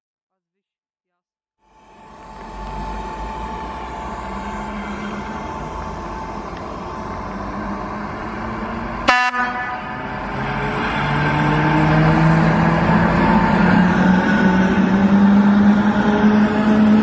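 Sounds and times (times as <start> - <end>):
thin steady whine: 1.6 - 7.6
train running rumble: 1.7 - 9.3.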